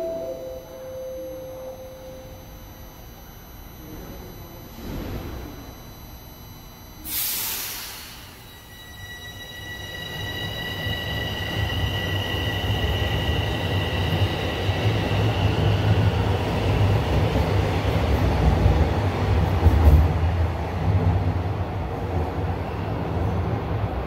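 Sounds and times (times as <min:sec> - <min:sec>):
high whine: 0:00.0 - 0:16.5
subway train wheels rumbling on rail: 0:07.4 - 0:24.0.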